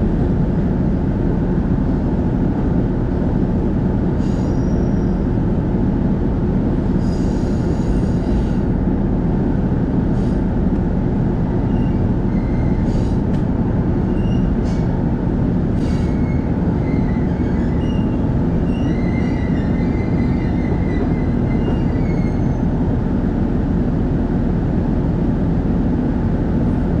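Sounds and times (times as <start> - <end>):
train engine and running gear rumble: 0.0 - 27.0
wheel and brake squeals: 4.2 - 5.4, 11.6 - 13.4, 14.0 - 14.9, 15.8 - 22.9.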